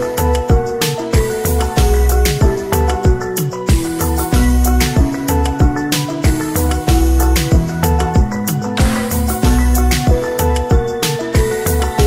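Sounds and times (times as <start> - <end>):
bass drum hits: 8.8 - 10.2.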